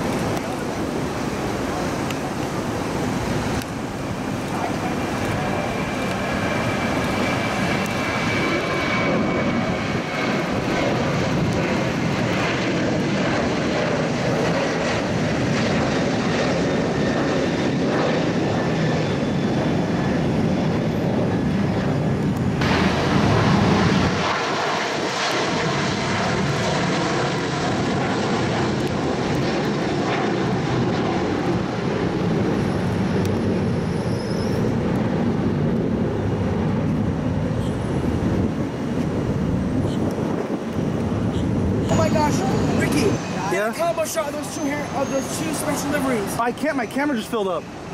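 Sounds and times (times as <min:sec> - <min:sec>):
jet engines climbing out: 0:00.0 - 0:47.9.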